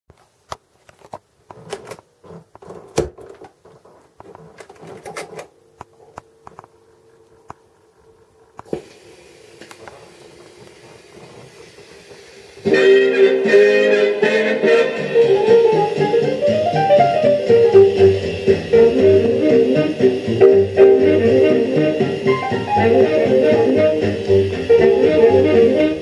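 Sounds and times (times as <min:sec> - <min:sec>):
record surface hiss and ticks: 0:00.1 - 0:08.8, 0:09.6 - 0:12.6.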